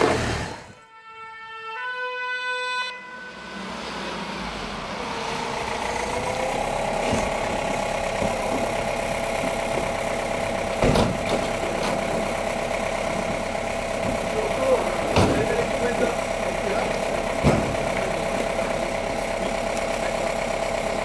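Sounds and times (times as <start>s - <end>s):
van engine idling: 4.0s - 21.0s
door slamming: 10.8s - 11.5s.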